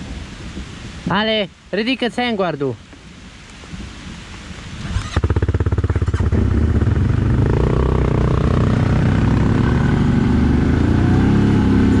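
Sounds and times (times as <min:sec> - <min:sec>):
atv engine running under throttle: 0:04.9 - 0:12.0.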